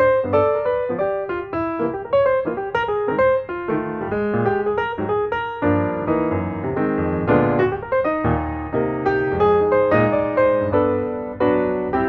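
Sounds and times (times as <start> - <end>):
piano music: 0.0 - 12.0.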